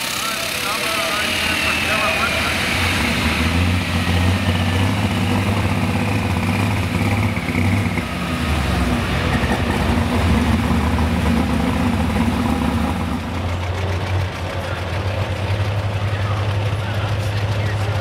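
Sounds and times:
tractor engine idling: 0.0 - 18.0.

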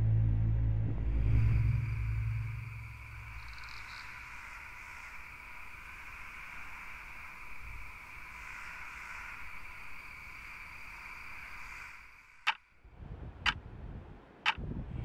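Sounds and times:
high-pitched drone: 0.0 - 4.3.

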